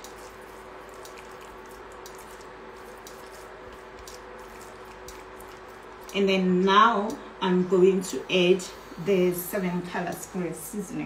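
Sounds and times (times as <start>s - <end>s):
wet squishing of stirred chicken: 0.0s - 7.3s.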